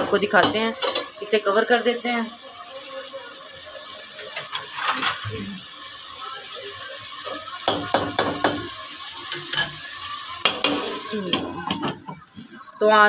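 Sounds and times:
pot simmering hiss: 0.0s - 13.0s
spoon scraping steel pot: 0.2s - 1.2s.

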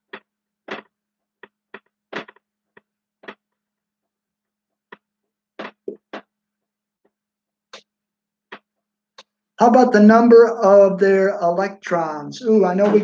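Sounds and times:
marker writing on whiteboard: 4.7s - 6.4s.

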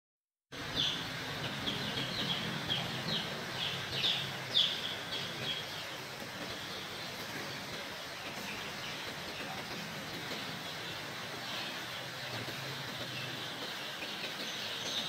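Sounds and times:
chicks peeping: 0.6s - 15.0s
steady background hiss: 0.6s - 15.0s.

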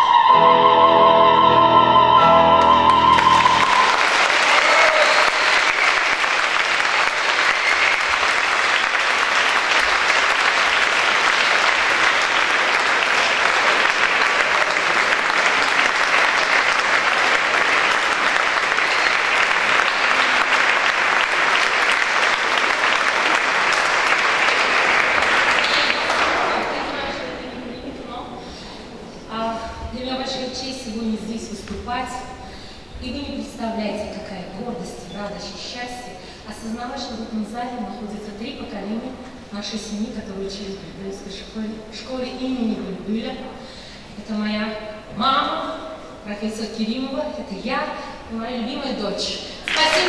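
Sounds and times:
piano: 0.0s - 4.2s
audience applauding: 2.5s - 27.4s, 49.6s - 50.0s.

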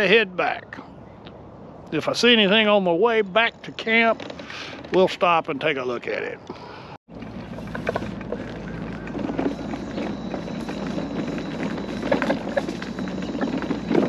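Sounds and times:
wheels rumbling on concrete: 2.1s - 6.4s, 7.1s - 14.0s
scooter motor hum: 7.1s - 14.0s.

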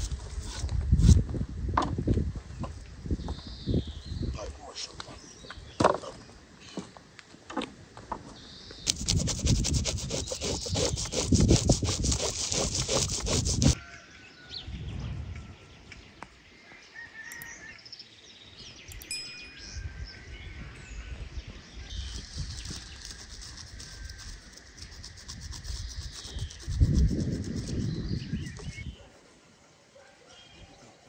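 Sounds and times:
rasping scrapes on fish: 8.9s - 13.8s, 22.0s - 28.0s.

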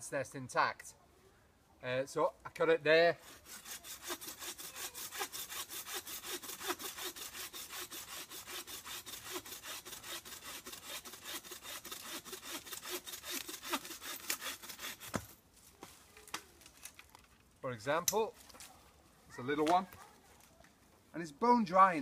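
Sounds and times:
bow saw cutting dry wood: 3.2s - 15.4s.

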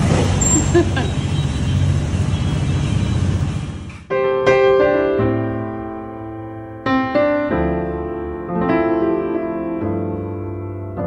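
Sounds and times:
motor scooter engine running: 0.0s - 3.9s
piano music: 4.1s - 11.0s.

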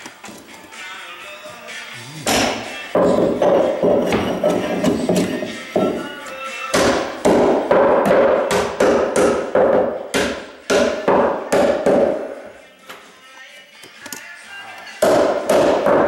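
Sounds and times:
hammer nailing into wood: 6.8s - 12.2s, 15.0s - 16.0s.

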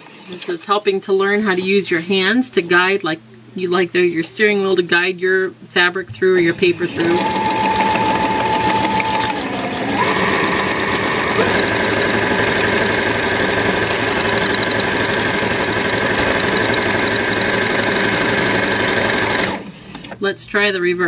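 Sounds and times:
sewing machine stitching: 6.5s - 19.7s.

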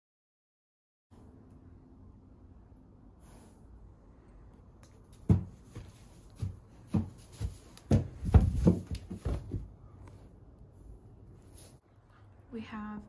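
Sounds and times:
dull thumps in horse stall: 5.2s - 9.7s.

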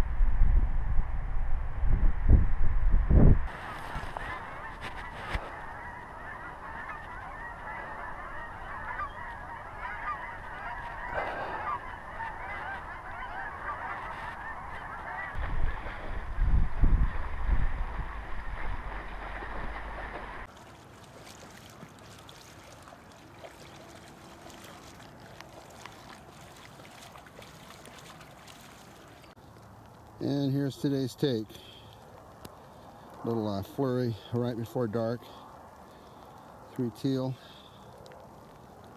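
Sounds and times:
flock of waterfowl calling: 3.5s - 20.5s.

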